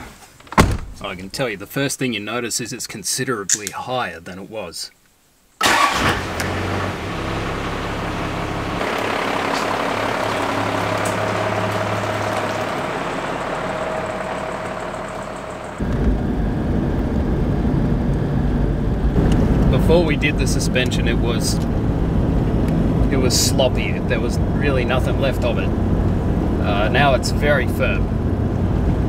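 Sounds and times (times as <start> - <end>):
engine starting and idling: 5.6 - 16.1
truck driving rumble from cab: 5.6 - 29.0.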